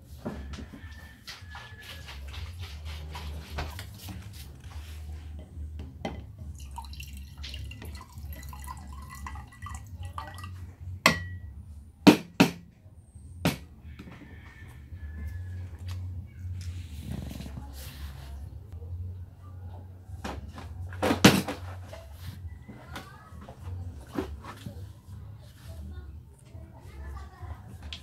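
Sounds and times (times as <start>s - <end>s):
water pouring into glass: 6.5s - 10.6s.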